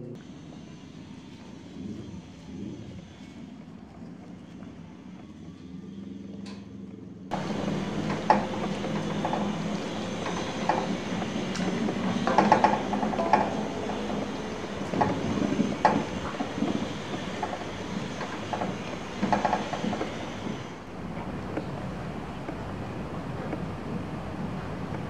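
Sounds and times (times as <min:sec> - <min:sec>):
ladle knocking and scraping wok: 0:07.3 - 0:20.4.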